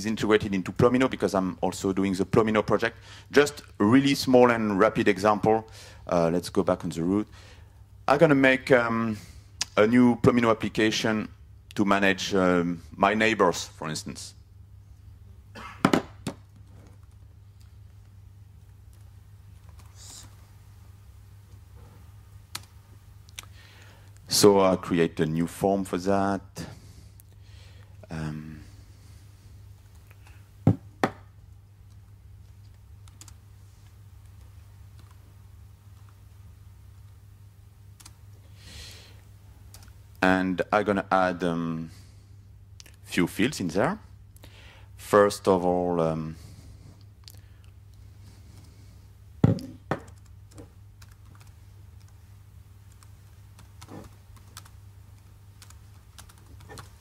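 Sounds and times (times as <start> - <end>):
steady low hum: 0.0 - 57.0
laptop keyboard typing: 33.0 - 33.4, 50.0 - 52.2, 52.9 - 57.0.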